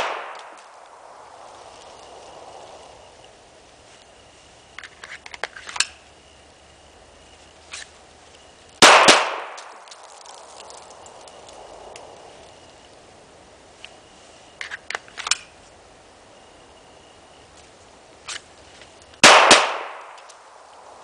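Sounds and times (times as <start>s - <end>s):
handgun shots with echo: 0.0s - 0.6s, 8.8s - 9.7s, 19.2s - 20.2s.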